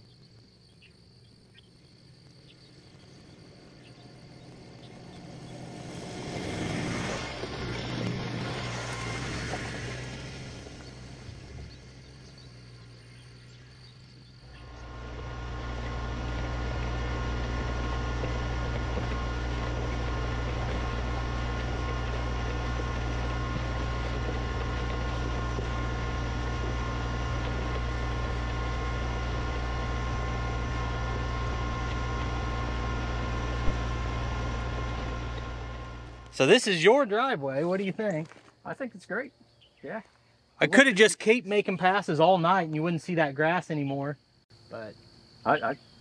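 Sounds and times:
tractor diesel engine running: 2.2 - 38.6
blade scraping gravel: 5.2 - 11.5, 14.7 - 36.4, 37.6 - 38.6.

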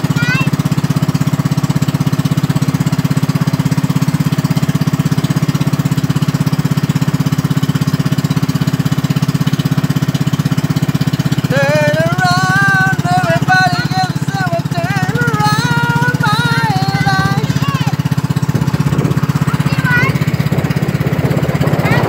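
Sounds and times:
boat engine rumbling: 0.0 - 22.0
high voice singing wavering notes: 11.5 - 17.6.

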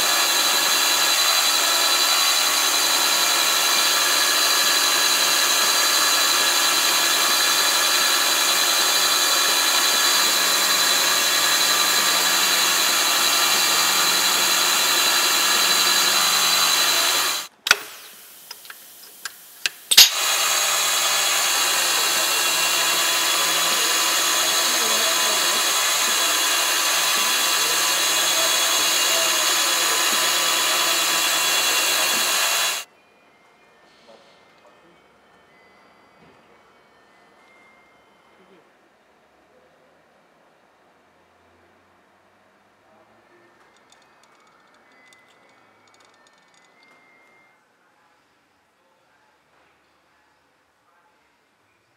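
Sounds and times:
milling machine whine: 0.0 - 32.9.

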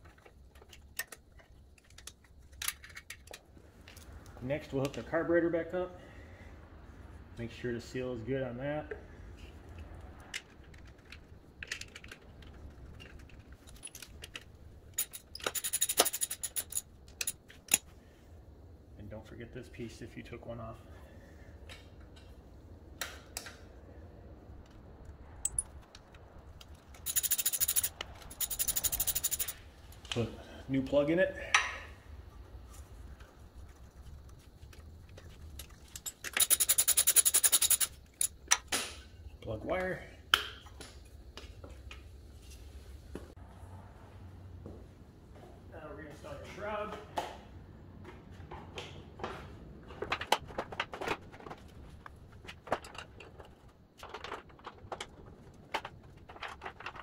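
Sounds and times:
jingling metallic clinks: 15.0 - 17.4, 27.0 - 29.6, 36.0 - 38.4
ratchet wrench clicking rapidly: 15.0 - 17.4, 27.0 - 29.6, 36.0 - 38.4.

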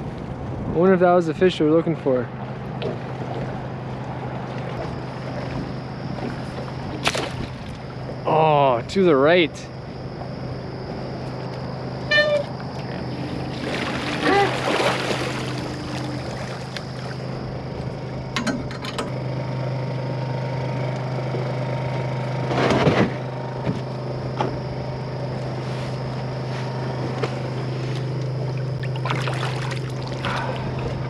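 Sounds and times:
boat motor humming: 1.4 - 31.0
water sloshing: 2.4 - 8.2, 11.2 - 18.8, 27.1 - 31.0.

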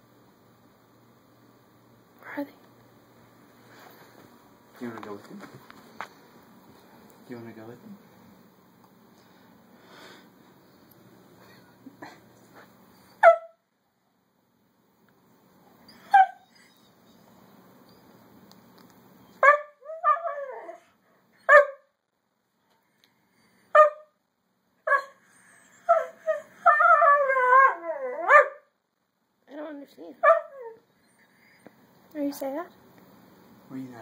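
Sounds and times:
dog yipping: 13.0 - 13.6, 15.9 - 17.3, 19.4 - 21.8, 23.8 - 24.1, 24.9 - 26.5, 30.2 - 31.3
dog howling and whining: 15.8 - 18.0, 19.4 - 21.8, 24.8 - 28.6, 30.2 - 31.3.

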